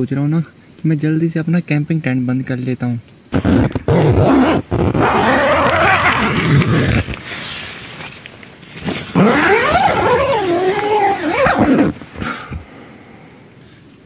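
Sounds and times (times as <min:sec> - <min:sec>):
tent zipper being pulled: 0:03.3 - 0:08.1, 0:08.8 - 0:12.3.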